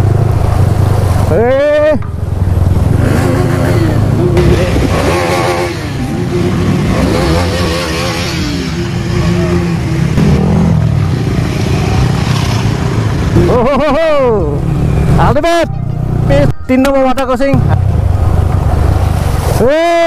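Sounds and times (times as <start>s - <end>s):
motorcycle engines revving: 0.0s - 20.0s
water splashing: 18.2s - 20.0s.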